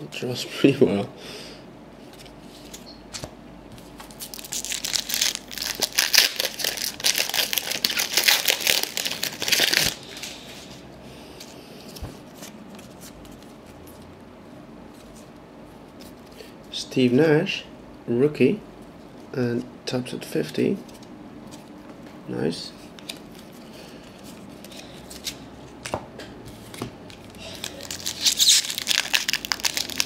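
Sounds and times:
wrapper being torn and crinkled: 4.1 - 10.3, 27.2 - 30.0.

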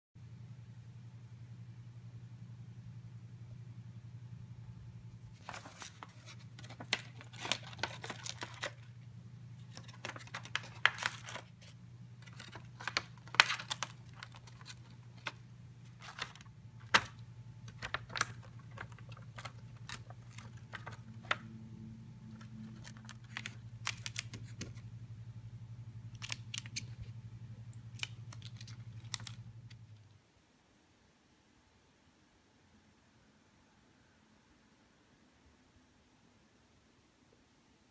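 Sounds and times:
steady low hum: 0.2 - 30.8
bird beak tearing paper: 5.4 - 8.9, 9.6 - 21.4, 22.4 - 24.8, 26.2 - 27.1, 27.9 - 29.4.

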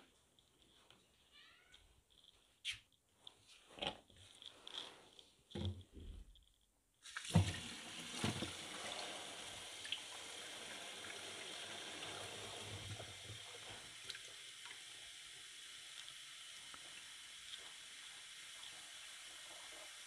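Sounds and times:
tap water filling plastic bottle: 7.0 - 15.0.

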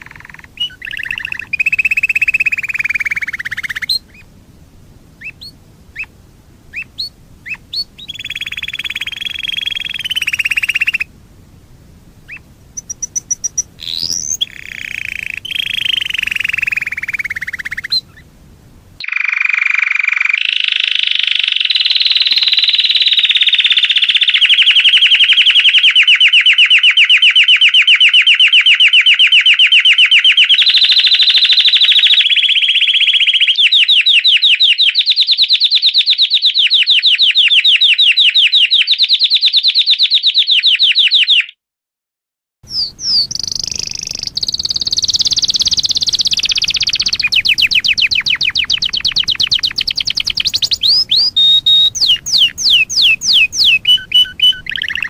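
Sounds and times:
canary singing trills: 0.0 - 4.4, 5.1 - 11.2, 12.2 - 18.3, 42.7 - 55.0
faint background hiss: 0.0 - 19.0, 42.6 - 55.0.

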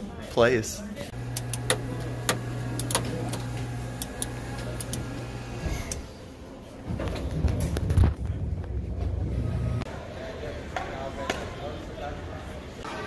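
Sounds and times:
cockpit switches clicking: 1.2 - 5.2
steady low hum: 7.5 - 9.9.

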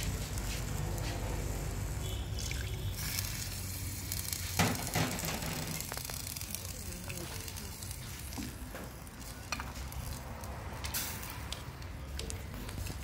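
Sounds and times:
curry bubbling in pot: 2.0 - 10.3
gas stove rumble: 3.2 - 10.1.

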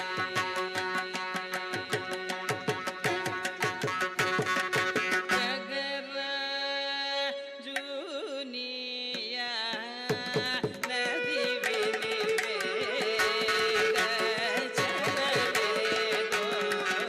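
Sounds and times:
violin melody: 0.0 - 5.8, 11.0 - 17.0
person singing: 0.0 - 17.0
harmonica: 11.0 - 17.0.

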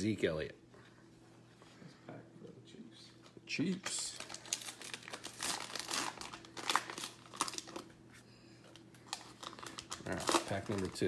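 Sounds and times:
foil wrapper tearing and crinkling: 3.6 - 7.9, 9.0 - 11.0.

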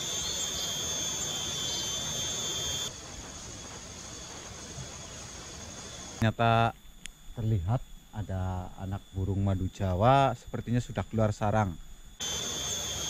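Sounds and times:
broad hiss: 0.0 - 6.2
faint high chirps: 0.0 - 6.2
high-pitched whine: 0.0 - 13.0.

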